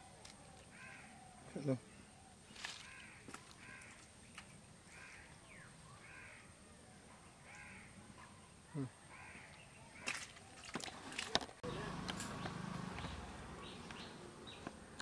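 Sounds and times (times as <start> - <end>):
crow cawing: 0.7 - 1.4, 2.6 - 4.1, 4.9 - 5.4, 6.0 - 6.5, 7.4 - 8.0, 9.1 - 10.2.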